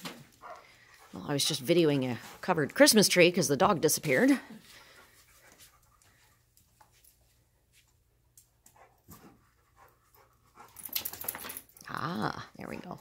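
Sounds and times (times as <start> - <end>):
dog breathing and sniffing: 8.7 - 11.6.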